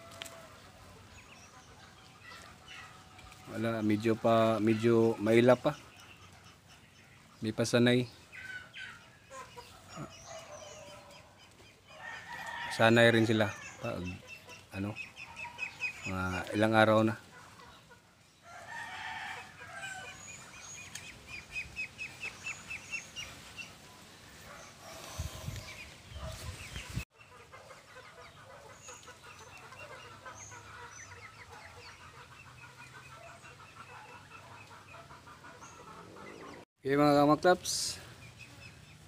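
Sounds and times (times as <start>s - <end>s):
chickens clucking: 0.0s - 39.0s.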